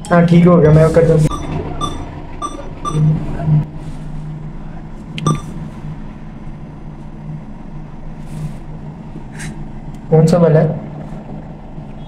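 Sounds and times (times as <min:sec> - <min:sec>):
low hum: 0:00.0 - 0:10.1
keypad beeps: 0:01.3 - 0:03.2, 0:05.2 - 0:05.6.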